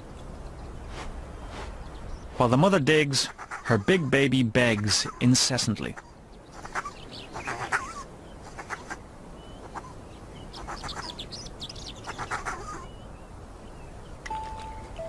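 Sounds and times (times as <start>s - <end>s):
honey badger cub begging calls: 2.5s - 9.0s, 11.9s - 13.0s.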